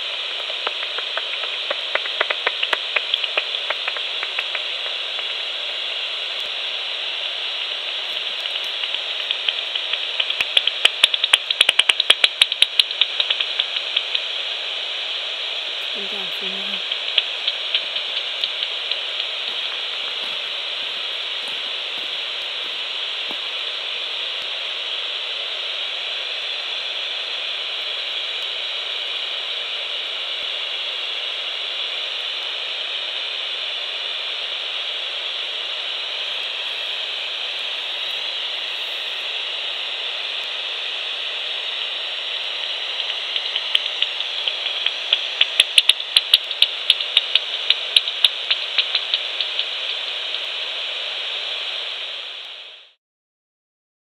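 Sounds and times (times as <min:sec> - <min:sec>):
bat detector hiss: 0:00.0 - 0:53.0
bat detector clicks: 0:00.3 - 0:05.4, 0:07.6 - 0:14.2, 0:16.8 - 0:23.4, 0:43.0 - 0:50.4.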